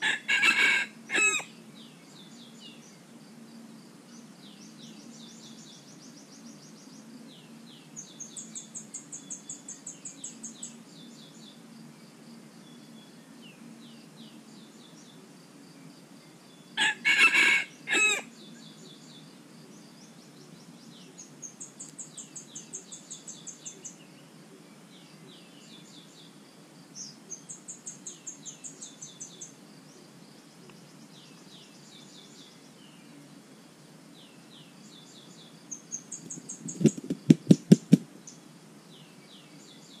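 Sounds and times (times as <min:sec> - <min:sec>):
rooster crowing: 0:00.0 - 0:01.5, 0:16.8 - 0:18.3
small bird high trills: 0:00.3 - 0:01.5, 0:16.8 - 0:18.3.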